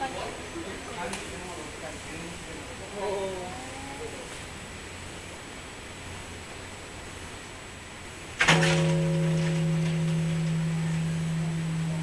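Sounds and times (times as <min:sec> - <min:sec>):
temple bell ringing: 0:08.4 - 0:12.0.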